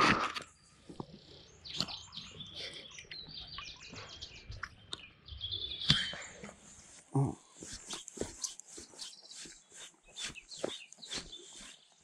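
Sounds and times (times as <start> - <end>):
songbird singing: 0.4 - 12.0.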